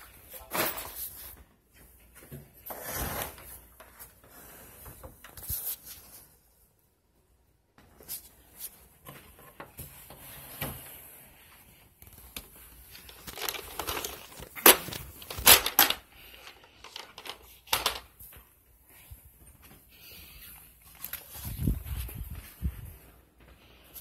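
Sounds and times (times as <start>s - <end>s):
rustling and scraping: 7.8s - 24.0s.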